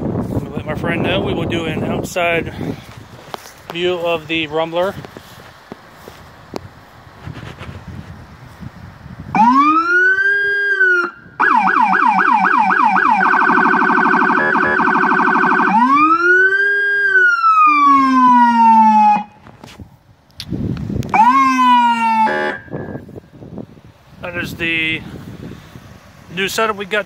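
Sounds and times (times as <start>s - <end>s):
deep low siren tone: 9.3s - 19.6s, 21.1s - 23.1s
vehicle siren wailing and yelping: 9.4s - 19.5s, 21.1s - 23.0s.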